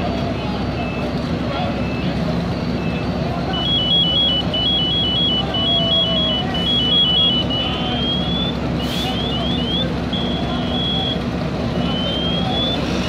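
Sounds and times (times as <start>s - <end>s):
low engine rumble: 0.0s - 13.0s
electronic alarm warbling: 2.8s - 8.6s.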